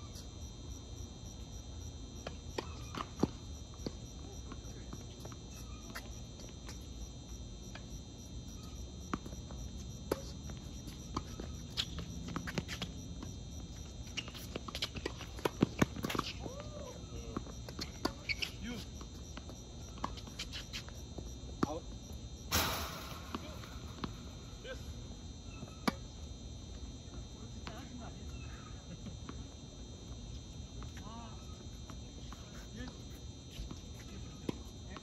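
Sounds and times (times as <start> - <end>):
crickets chirping: 0.0 - 35.0
tennis ball bouncing on court: 9.1 - 13.4, 22.5 - 24.6
rackets hitting tennis ball: 22.5 - 24.9.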